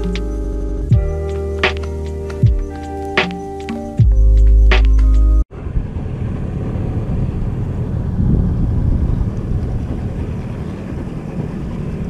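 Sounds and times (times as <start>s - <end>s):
background music: 0.0s - 5.4s
wind buffeting microphone: 0.0s - 12.0s.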